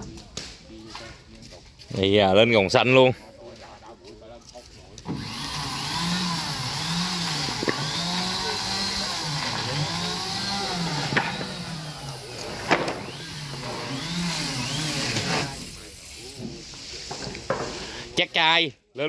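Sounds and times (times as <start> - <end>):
small motor rising and falling: 5.1 - 16.0.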